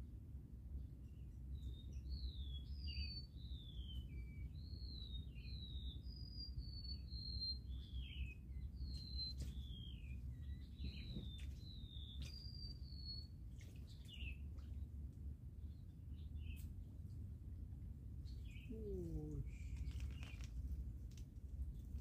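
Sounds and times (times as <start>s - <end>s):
low background rumble: 0.0s - 22.0s
songbird whistling: 2.1s - 13.3s.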